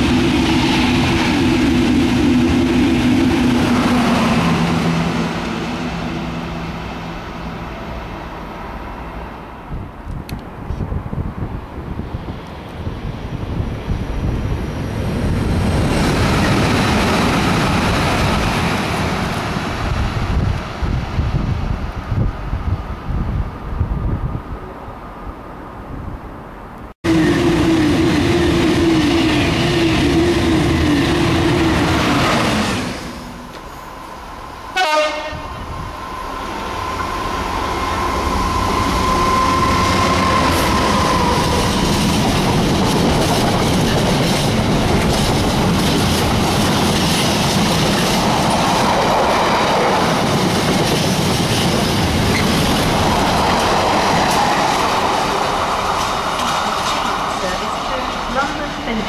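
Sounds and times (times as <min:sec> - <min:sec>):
diesel locomotive engine: 0:00.0 - 0:25.8, 0:26.7 - 0:59.0
train horn: 0:27.1 - 0:32.1, 0:34.7 - 0:35.7, 0:36.9 - 0:41.7
wagons clattering over track: 0:40.8 - 0:59.0.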